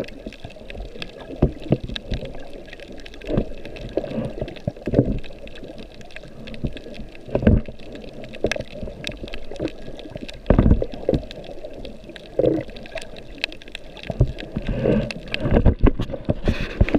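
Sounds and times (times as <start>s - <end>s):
muffled underwater water wash: 0.0s - 16.9s
water gurgles and whooshes: 0.0s - 16.9s.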